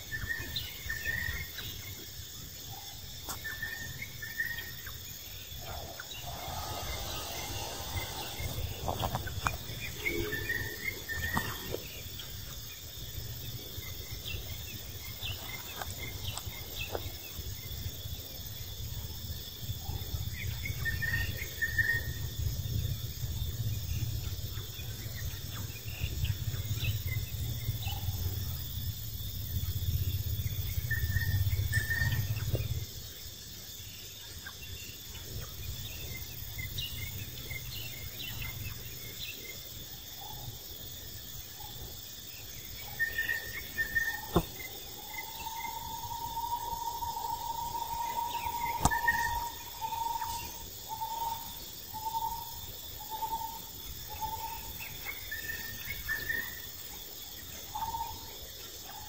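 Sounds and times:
insect chorus: 0:00.0 - 0:59.0
low rumble: 0:05.2 - 0:11.3.

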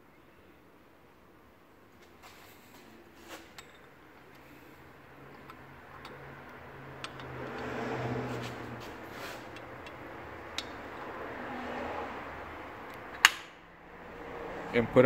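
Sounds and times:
light metallic clicks and taps: 0:05.3 - 0:07.7, 0:09.5 - 0:11.1.

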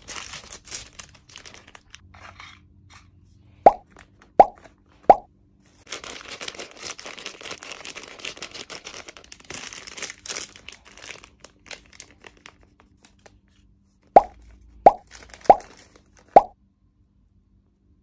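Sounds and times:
plastic bag crinkling: 0:00.0 - 0:02.0, 0:05.8 - 0:13.4, 0:15.0 - 0:16.4.

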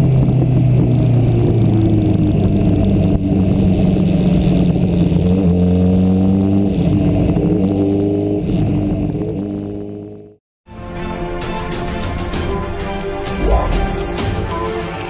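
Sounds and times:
road and wind noise: 0:00.0 - 0:10.4.

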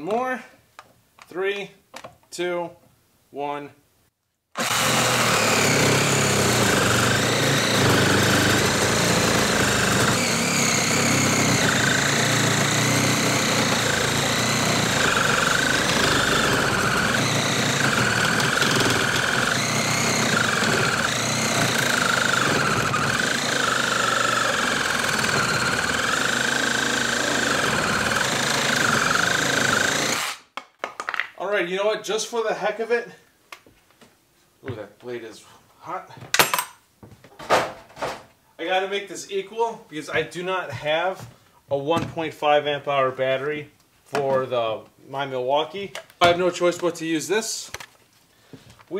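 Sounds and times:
reciprocating saw cutting wood: 0:04.6 - 0:30.5.

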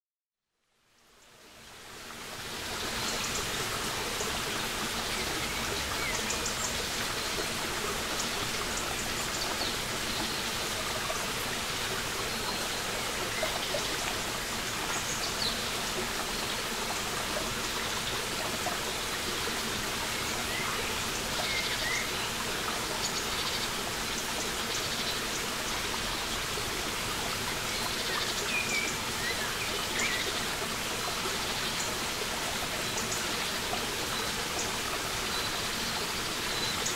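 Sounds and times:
brook babbling over rocks: 0:00.9 - 0:36.9.

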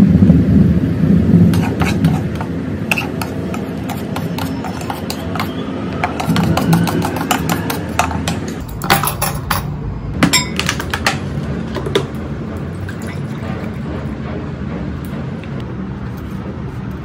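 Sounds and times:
spatula scraping a pot: 0:01.5 - 0:08.5
dishes and utensils clinking: 0:01.6 - 0:12.1.

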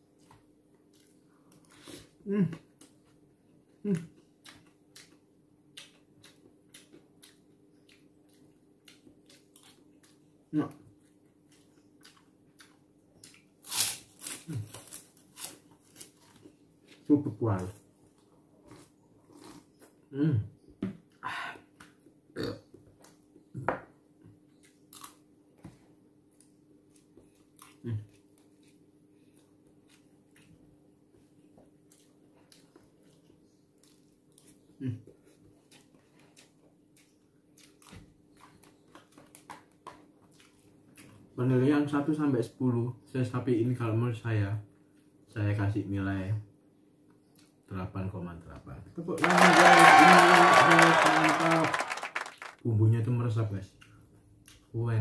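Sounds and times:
chewing: 0:03.9 - 0:10.3, 0:10.9 - 0:13.5, 0:18.0 - 0:20.0, 0:26.3 - 0:41.3.

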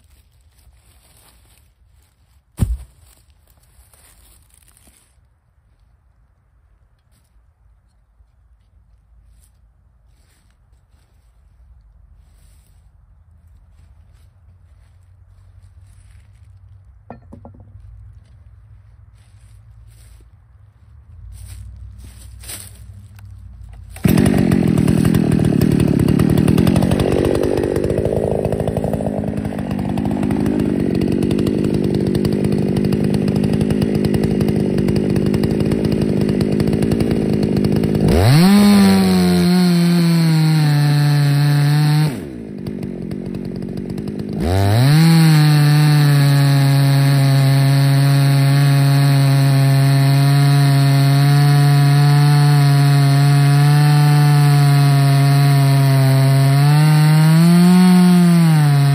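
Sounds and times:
chainsaw cutting log: 0:00.0 - 0:03.2, 0:17.1 - 0:17.8, 0:21.3 - 0:58.9.

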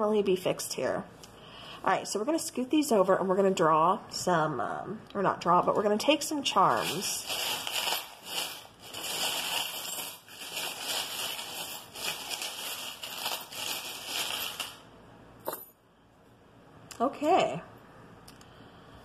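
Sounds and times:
charms clattering onto cloth: 0:15.4 - 0:15.8.

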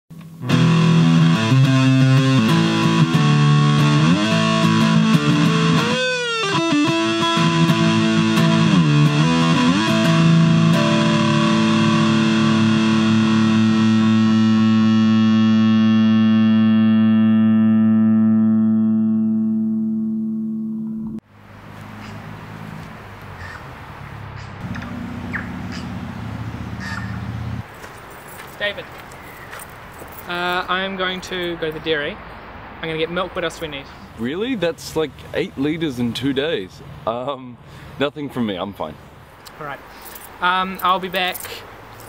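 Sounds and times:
distorted electric guitar riff: 0:00.1 - 0:21.2.

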